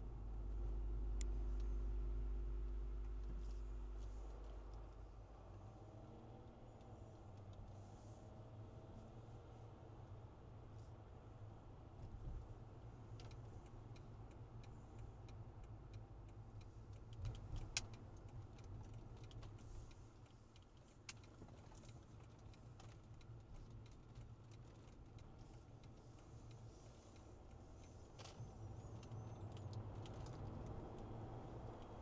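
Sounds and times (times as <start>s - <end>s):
car engine and tyres rumbling: 0.0s - 32.0s
light ticks and clicks: 13.0s - 32.0s.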